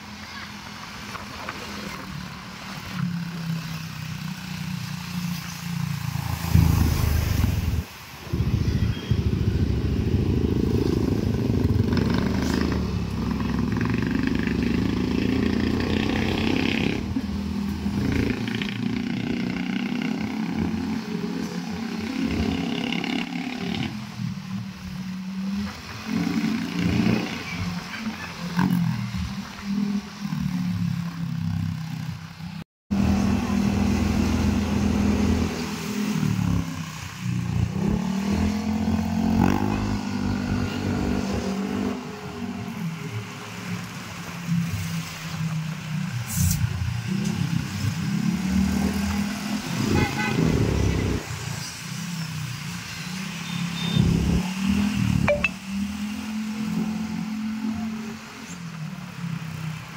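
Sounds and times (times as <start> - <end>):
vehicle engine revving: 6.0 - 24.2.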